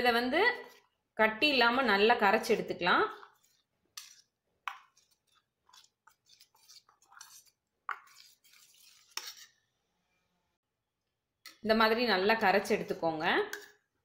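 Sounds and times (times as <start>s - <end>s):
spoon scraping steel bowl: 0.5s - 1.0s, 2.3s - 9.7s, 12.7s - 13.9s.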